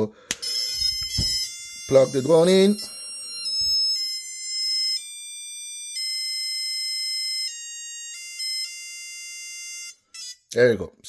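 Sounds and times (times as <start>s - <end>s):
drone motors beeping melody: 0.4s - 10.4s
battery plug thump: 0.8s - 1.5s.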